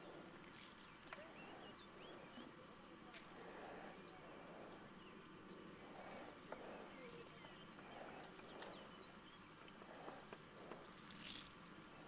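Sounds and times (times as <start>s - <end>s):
faint bird chirps: 3.4s - 11.5s.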